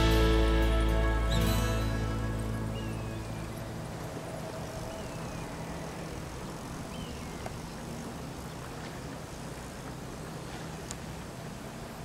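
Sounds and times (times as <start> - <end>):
outdoor background rumble: 0.0 - 12.0
faint high chirps: 0.8 - 6.3.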